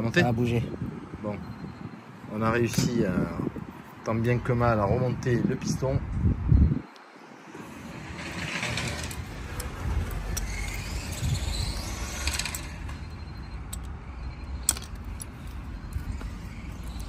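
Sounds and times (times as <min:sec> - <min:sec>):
rc car engines passing: 0:07.1 - 0:17.0.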